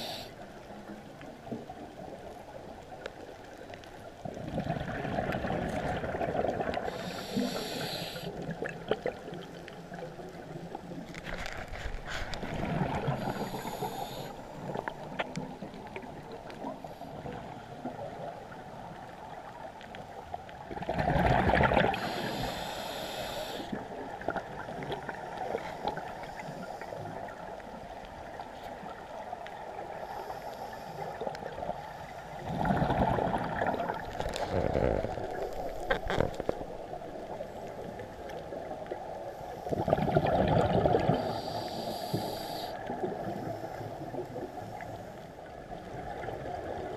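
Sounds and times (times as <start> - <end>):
muffled underwater hiss: 0.0 - 20.3, 21.2 - 46.9
exhaled bubble bursts: 32.4 - 35.4, 39.8 - 41.2.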